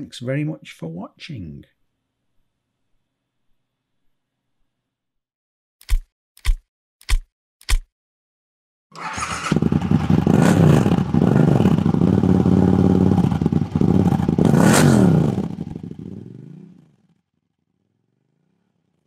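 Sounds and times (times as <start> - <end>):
engine revving: 9.0 - 16.9.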